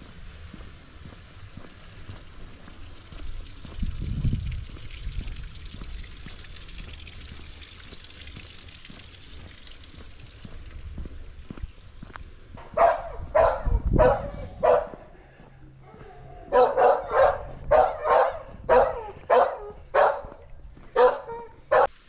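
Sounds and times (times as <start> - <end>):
dog barking: 12.7 - 20.4, 21.0 - 21.9.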